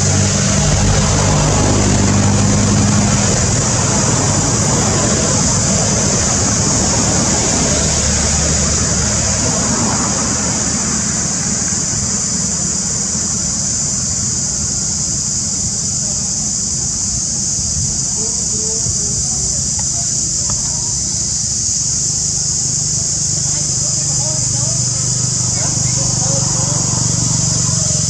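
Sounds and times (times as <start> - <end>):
low rumble: 0.0 - 12.2
high-pitched insect drone: 0.0 - 28.0.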